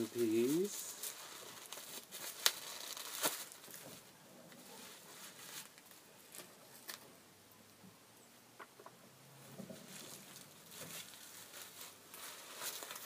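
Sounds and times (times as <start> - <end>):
plastic wrapping crinkling: 0.0 - 7.0, 9.8 - 13.0.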